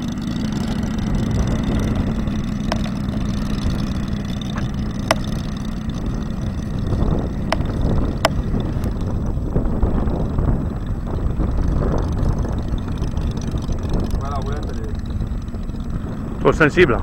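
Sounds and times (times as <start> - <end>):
model plane engine running: 0.0 - 17.0
sharp clicks: 4.5 - 5.4.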